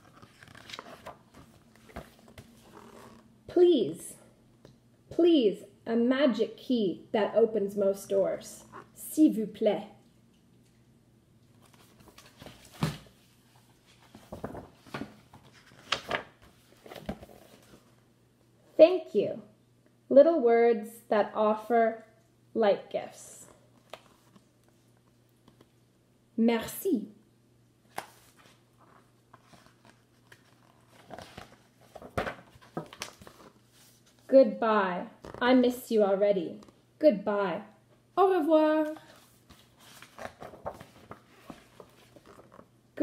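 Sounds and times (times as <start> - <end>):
book pages turning: 0.0 - 3.2, 11.6 - 18.0, 23.7 - 25.7, 27.9 - 34.3, 35.2 - 35.4, 38.8 - 42.7
paper rustles and knocks: 13.9 - 17.8, 29.4 - 34.1.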